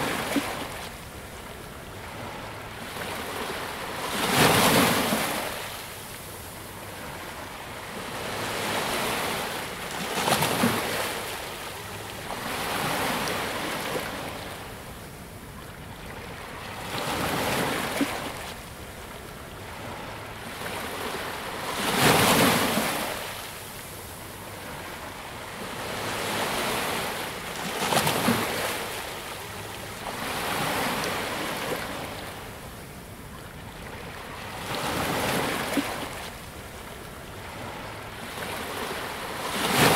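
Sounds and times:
ocean waves breaking: 0:16.0 - 0:39.9.

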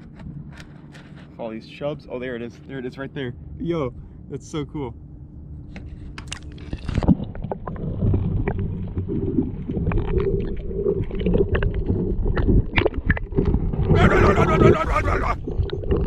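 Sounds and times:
muffled underwater rumble: 0:00.0 - 0:16.0
underwater clicks and pops: 0:06.2 - 0:13.9.

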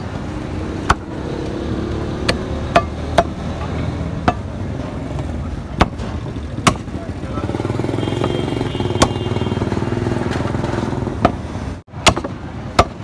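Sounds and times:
blade chopping meat on wood: 0:02.2 - 0:03.5, 0:05.8 - 0:07.0, 0:08.2 - 0:09.3, 0:12.0 - 0:13.0.

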